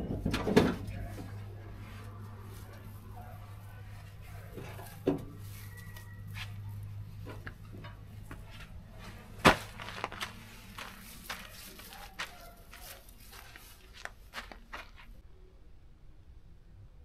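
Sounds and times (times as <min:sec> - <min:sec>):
knocks and clatters: 0:00.0 - 0:01.4
loud sharp thump: 0:09.4 - 0:09.8.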